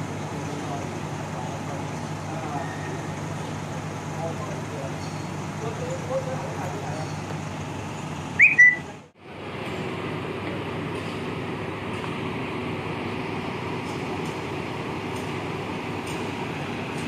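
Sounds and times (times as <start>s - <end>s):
bus station rumble and hum: 0.0s - 17.0s.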